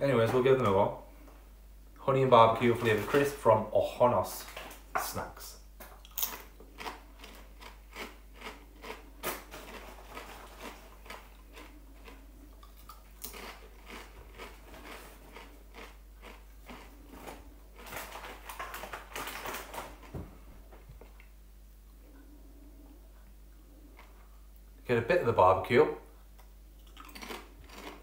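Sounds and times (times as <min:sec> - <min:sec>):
person chewing crisps: 0:06.0 - 0:20.1, 0:23.6 - 0:24.6, 0:26.4 - 0:28.0.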